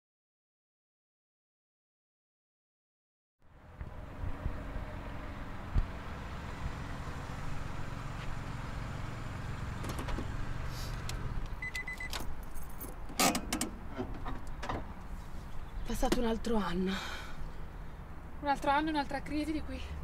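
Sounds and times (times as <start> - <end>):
car low rumble: 3.4 - 20.0.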